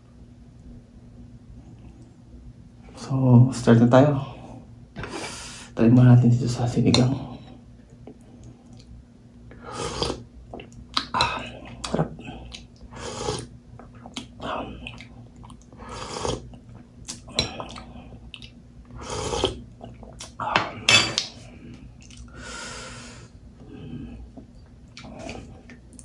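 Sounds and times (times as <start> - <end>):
slurping soup: 9.7 - 10.2, 15.8 - 16.5, 19.0 - 19.6.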